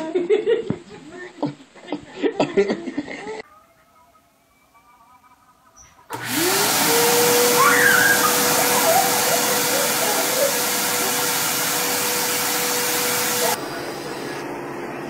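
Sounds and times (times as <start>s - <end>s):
shop vacuum running: 6.1s - 15.0s.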